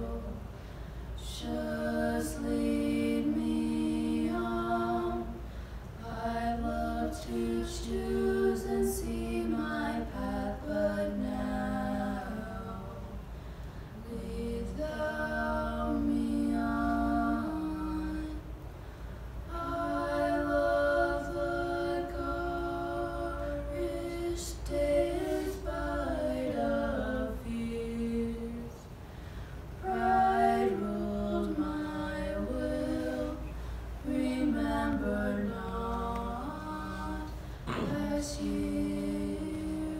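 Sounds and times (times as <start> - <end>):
girl singing unaccompanied: 6.0 - 13.2, 19.5 - 29.0, 29.8 - 39.9.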